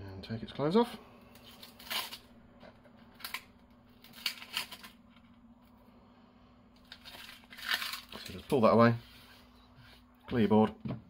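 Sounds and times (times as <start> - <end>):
onion skin crackling rustles: 1.3 - 2.3, 3.1 - 5.3, 6.8 - 9.0.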